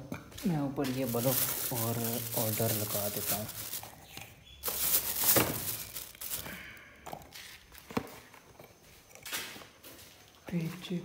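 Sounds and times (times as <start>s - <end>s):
plastic bag rustling: 0.8s - 7.9s.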